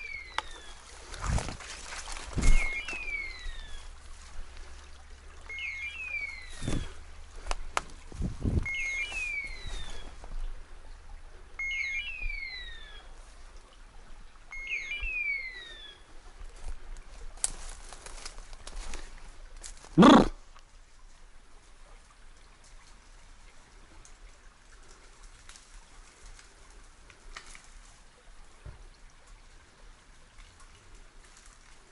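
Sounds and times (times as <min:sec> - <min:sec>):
footsteps crunching through brush: 0:00.4 - 0:04.8, 0:06.2 - 0:10.4, 0:16.6 - 0:20.0
short electronic beep: 0:02.4 - 0:03.4, 0:05.5 - 0:06.9, 0:08.6 - 0:09.7, 0:11.6 - 0:12.8, 0:14.5 - 0:15.6.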